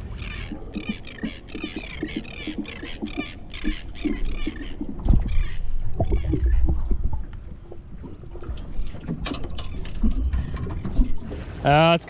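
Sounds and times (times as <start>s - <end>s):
knocks and clicks of gear: 8.4s - 11.2s.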